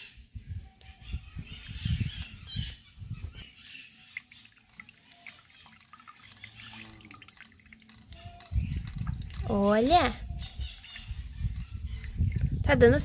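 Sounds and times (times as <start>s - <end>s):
water trickling and dripping: 3.3s - 13.0s
water poured over coffee: 3.5s - 9.8s.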